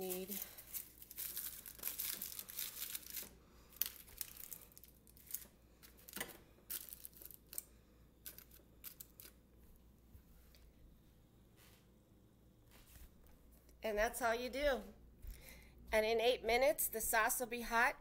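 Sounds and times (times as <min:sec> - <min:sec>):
aluminium foil crinkling: 0:00.0 - 0:09.4.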